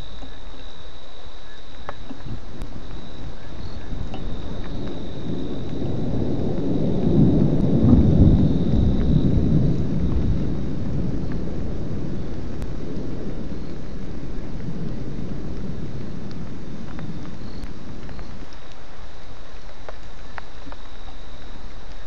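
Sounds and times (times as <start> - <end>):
high insect trill: 0.0 - 22.0
thunder rumbling: 1.4 - 22.0.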